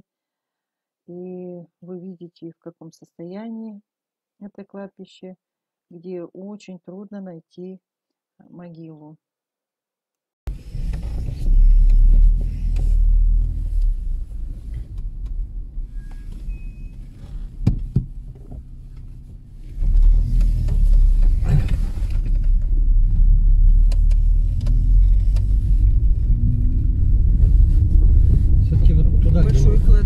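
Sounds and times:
car engine rumble: 10.5s - 30.0s
road noise: 10.5s - 30.0s.

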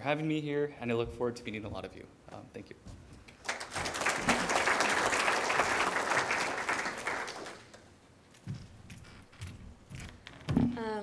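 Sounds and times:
audience applauding: 3.4s - 7.9s.

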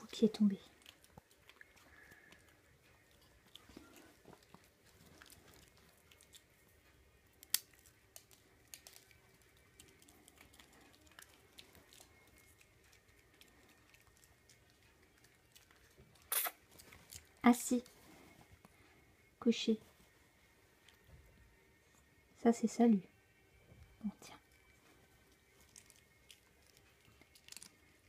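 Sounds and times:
faint clicks and rustles: 0.0s - 21.5s.

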